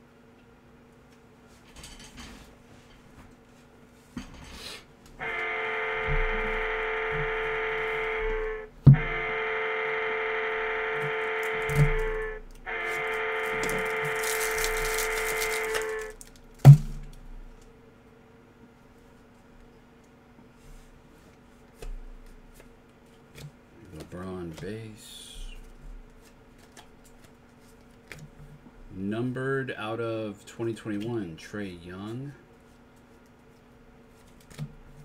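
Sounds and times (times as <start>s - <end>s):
long steady musical tones: 5.2s - 16.2s
sharp knocks: 8.8s - 9.2s.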